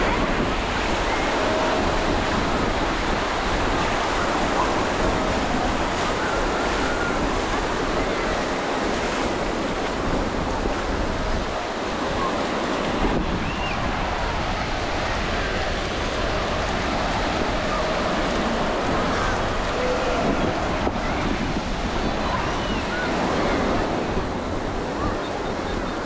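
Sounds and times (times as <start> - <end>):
ocean surf washing over beach: 0.0 - 26.0.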